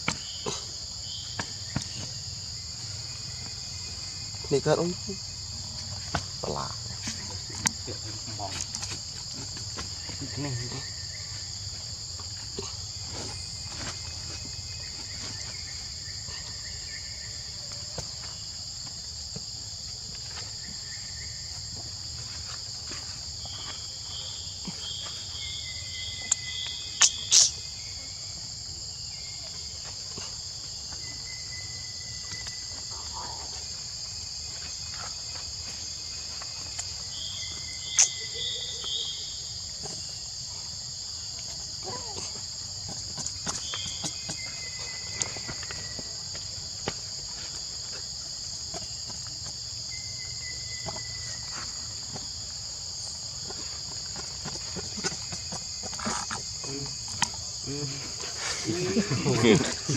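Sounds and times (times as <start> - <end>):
insect chorus drone: 0.0 - 59.9.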